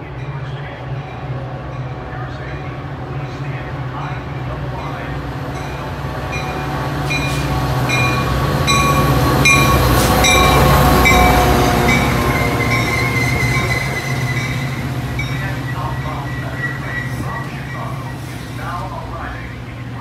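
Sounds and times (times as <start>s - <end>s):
diesel train rolling past: 0.0s - 20.0s
locomotive bell ringing: 0.0s - 20.0s.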